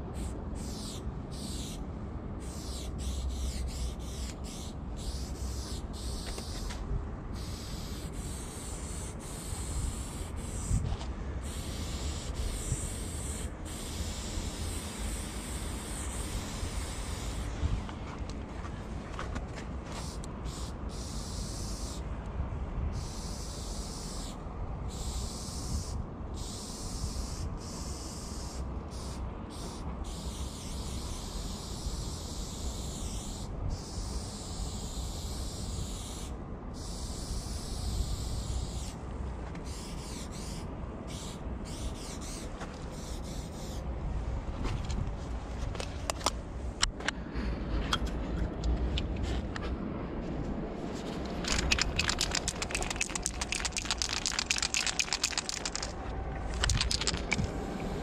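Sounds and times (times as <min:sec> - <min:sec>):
steady low rumble: 0:00.0 - 0:21.0, 0:43.8 - 0:58.0
spray paint can hissing: 0:00.2 - 0:01.7, 0:02.4 - 0:06.7, 0:07.4 - 0:10.7, 0:11.4 - 0:17.5, 0:20.0 - 0:22.0, 0:39.7 - 0:42.4, 0:51.4 - 0:57.6.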